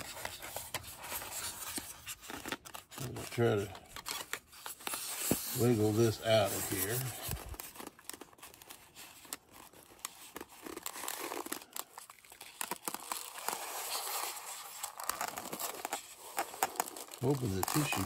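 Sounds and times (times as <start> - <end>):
packaging crinkling: 0.0 - 18.0
foam rubbing: 4.5 - 7.7, 12.7 - 18.0.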